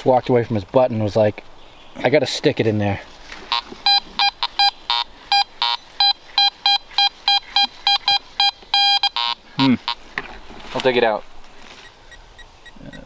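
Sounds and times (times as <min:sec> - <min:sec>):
metal detector beeping: 0:03.5 - 0:10.0, 0:11.8 - 0:13.0.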